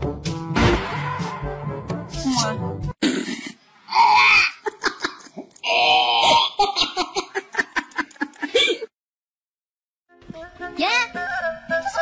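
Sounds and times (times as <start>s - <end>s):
high-pitched human laughter: 6.6s - 8.9s.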